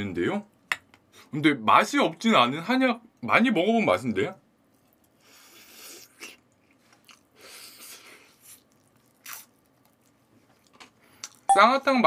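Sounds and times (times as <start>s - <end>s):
crunchy chewing: 4.7s - 11.5s.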